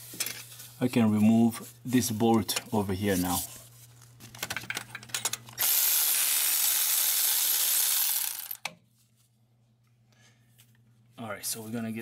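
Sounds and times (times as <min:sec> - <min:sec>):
power tool spinning hiss: 0:05.6 - 0:08.5.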